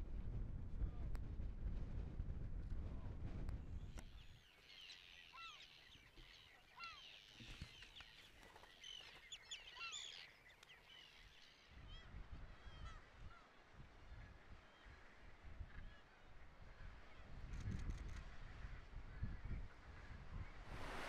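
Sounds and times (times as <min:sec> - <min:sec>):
seabirds chirping: 0:04.0 - 0:11.8.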